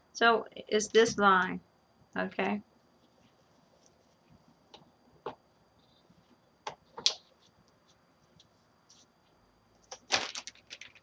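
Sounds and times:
plastic bag crinkling: 9.8 - 11.0.

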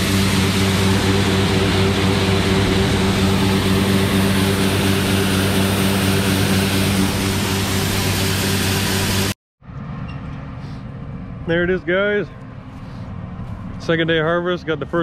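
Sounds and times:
auger hum: 0.0 - 9.4
combine engine droning: 0.0 - 15.0.

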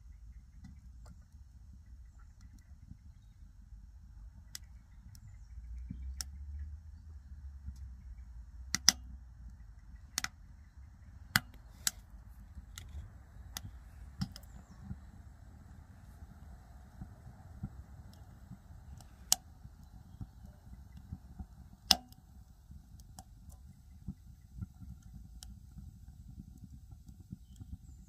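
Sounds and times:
faint low rumble: 0.0 - 28.0
burning wood crackling: 8.7 - 28.0
sharp pops and cracks: 11.2 - 15.1, 16.9 - 22.4.

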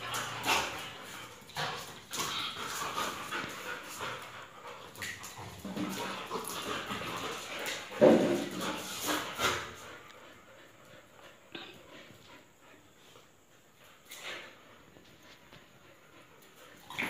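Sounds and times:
dogs scuffling: 0.0 - 9.9.

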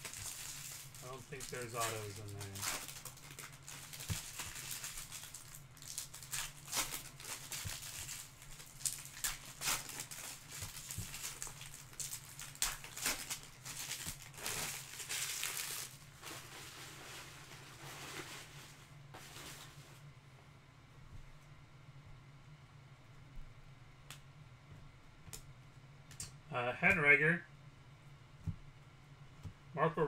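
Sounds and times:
cards rustling: 0.0 - 16.5.

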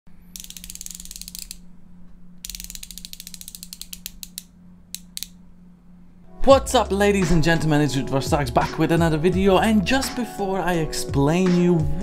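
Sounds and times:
ratchet tool clicking: 0.3 - 1.6, 2.4 - 5.4.

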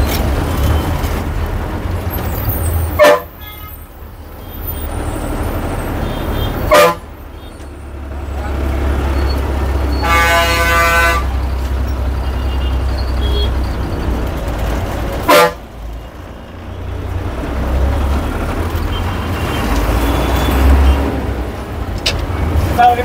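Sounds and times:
bus engine rumbling: 0.0 - 23.0
bus horn toot: 2.6 - 8.6, 9.9 - 11.6, 12.2 - 13.8, 15.2 - 15.7.

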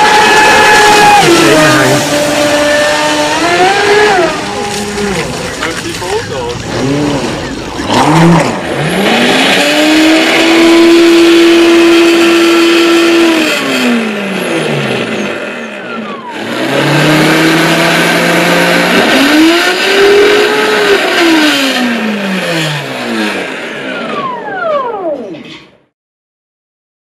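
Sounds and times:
electric motor whine: 0.0 - 5.6.

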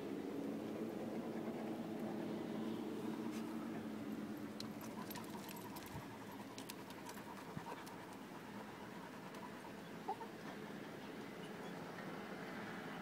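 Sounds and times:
paws clicking on rock: 4.5 - 9.7
dog panting: 4.6 - 10.6.

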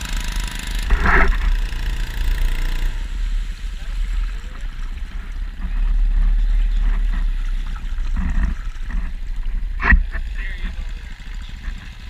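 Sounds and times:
boat motor running: 0.0 - 12.0
water rushing in wake: 0.0 - 12.0.

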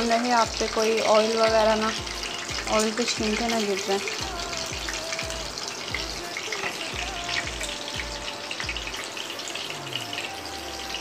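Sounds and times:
meat sizzling in oil: 0.0 - 11.0.

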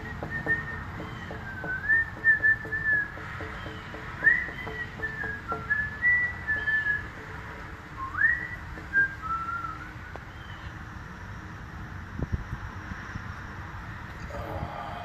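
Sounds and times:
man whistling a slow tune: 0.0 - 3.2, 4.2 - 7.3, 8.0 - 10.0.

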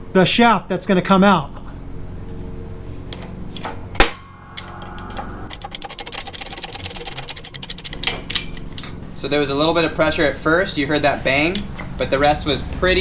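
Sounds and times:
sharp bang: 3.9 - 5.8.

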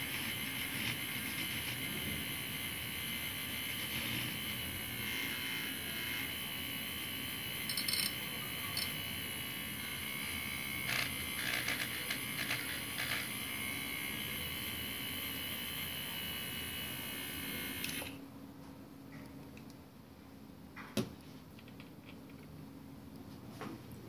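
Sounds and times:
milk frother motor buzzing: 0.0 - 18.2.

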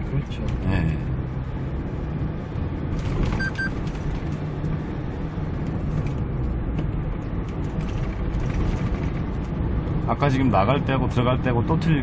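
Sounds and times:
truck engine and road noise: 0.0 - 12.0
short beeps: 3.4 - 3.7.

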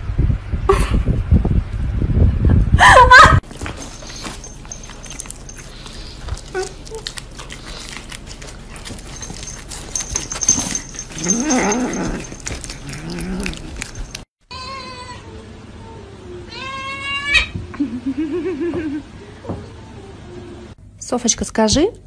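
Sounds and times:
cat licking and chewing: 3.5 - 14.3.

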